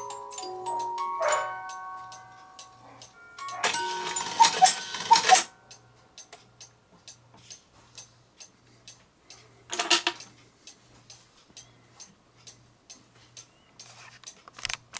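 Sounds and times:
cuckoo clock calls: 0.0s - 5.9s
clock ticking: 0.0s - 14.4s
clock clattering: 3.0s - 5.5s.

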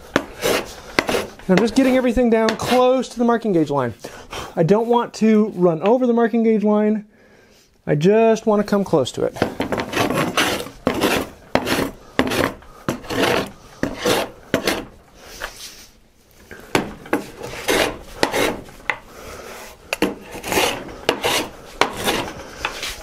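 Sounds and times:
hand plane shaving wood: 0.0s - 3.0s, 9.4s - 15.6s, 16.7s - 23.0s.

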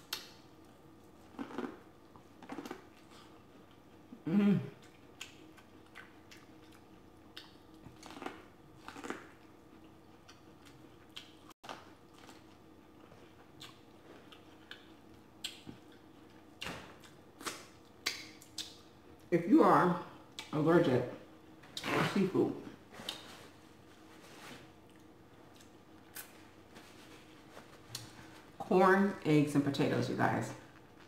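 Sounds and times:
person biting and chewing corn: 1.1s - 4.2s, 4.8s - 18.8s.

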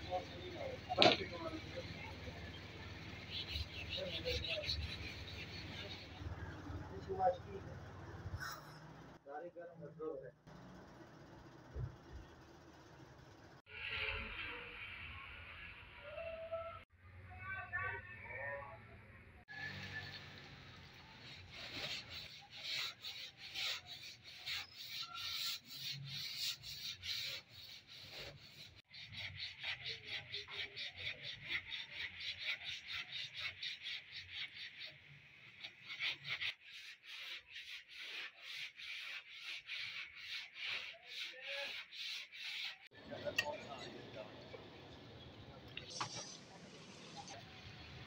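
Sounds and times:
sandpaper rubbing on body filler: 21.0s - 43.0s.

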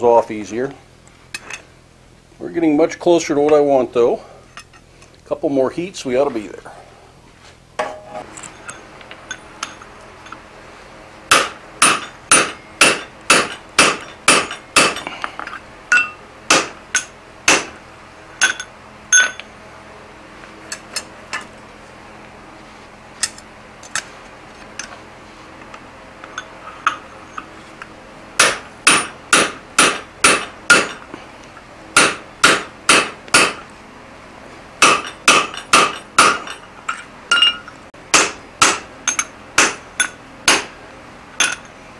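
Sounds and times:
hammer blows on steel on anvil: 28.4s - 31.1s, 32.0s - 33.6s.

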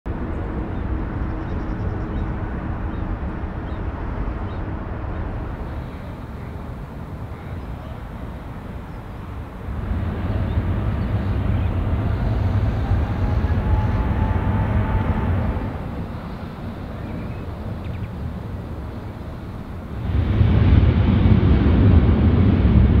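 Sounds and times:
low jet engine rumble: 0.1s - 23.0s
faint rising engine whine: 5.5s - 23.0s.

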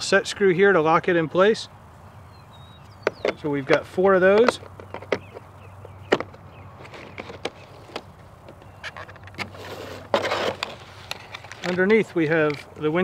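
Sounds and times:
cardboard rustling scrape: 8.8s - 12.7s.

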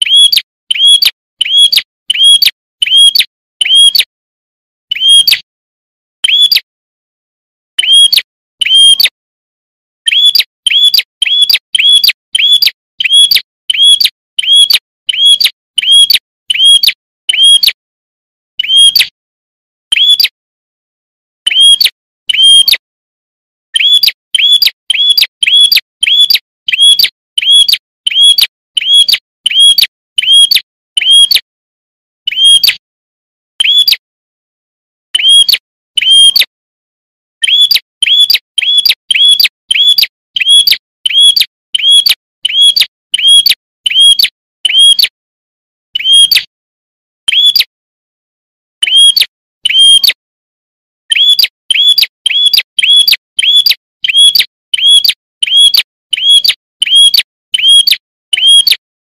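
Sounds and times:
bird high chirps: 0.0s - 4.1s, 4.9s - 5.5s, 6.2s - 6.7s, 7.8s - 9.2s, 10.0s - 17.8s, 18.6s - 19.1s, 19.9s - 20.4s, 21.4s - 22.8s, 23.7s - 31.4s, 32.3s - 32.8s, 33.6s - 34.0s, 35.2s - 36.5s, 37.4s - 45.1s, 46.0s - 46.5s, 47.3s - 47.7s, 48.8s - 50.2s, 51.1s - 58.8s.

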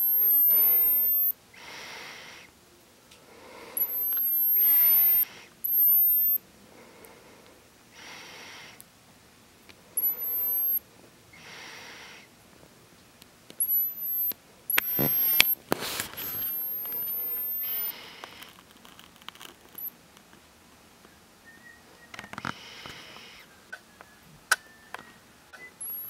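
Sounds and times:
camera lens motor whining: 0.0s - 1.3s, 3.8s - 6.4s, 10.0s - 10.8s, 13.6s - 17.9s, 25.8s - 26.0s
soft breaths: 0.1s - 8.9s, 9.7s - 12.7s, 13.6s - 19.0s, 21.9s - 23.9s
handling clicks: 13.5s - 17.9s.

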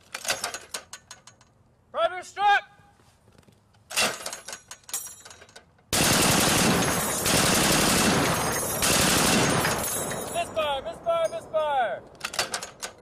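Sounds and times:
machine gun firing burst: 6.0s - 10.0s.

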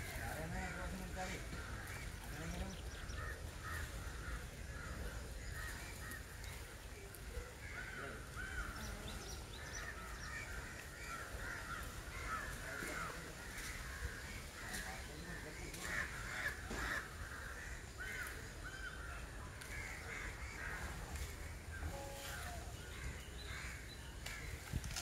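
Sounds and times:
crows cawing: 0.4s - 6.3s, 7.6s - 21.7s, 22.3s - 24.6s.

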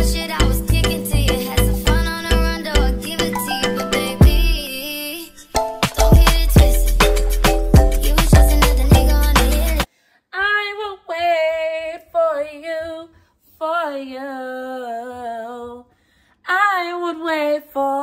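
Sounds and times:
background music: 0.0s - 9.9s
woman singing unaccompanied: 0.0s - 18.0s.

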